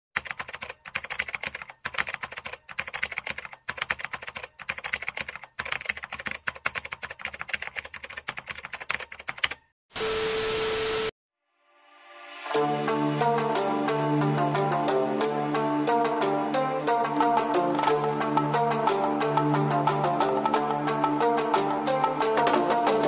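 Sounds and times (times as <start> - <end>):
rapid keyboard clicks: 0.2 - 9.7.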